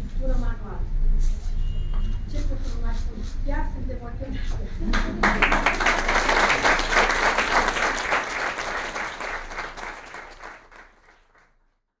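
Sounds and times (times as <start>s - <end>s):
audience applauding: 4.9s - 11.6s.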